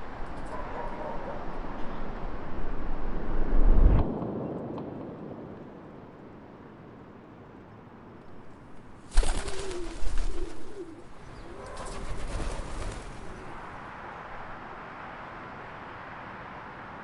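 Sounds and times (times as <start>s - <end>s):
low steady background noise: 0.0s - 17.0s
pigeon wings flapping: 9.0s - 13.7s
pigeons cooing: 9.2s - 13.8s.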